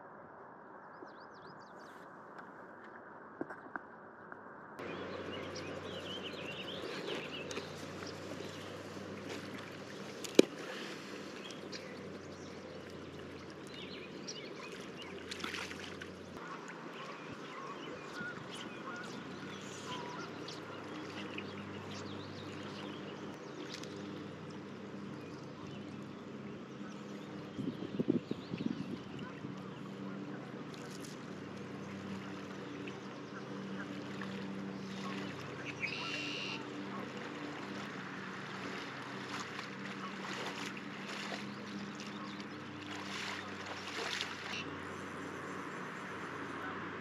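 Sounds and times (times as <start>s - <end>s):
river water running over stones: 5.3s - 16.4s.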